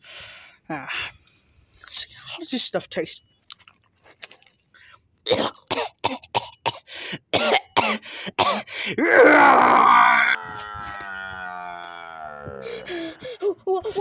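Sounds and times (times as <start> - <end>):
held vocal tone: 9.0 - 13.4
person grunting like a bear: 9.0 - 13.4
person roaring: 9.0 - 13.4.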